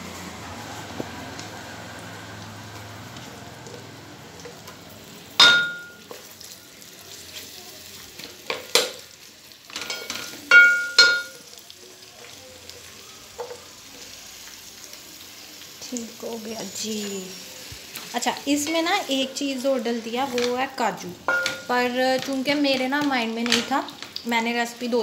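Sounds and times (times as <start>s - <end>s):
onions sizzling in hot oil: 0.0s - 25.0s
spatula knocking on steel pot: 5.4s - 5.9s, 10.5s - 11.3s, 21.3s - 21.7s.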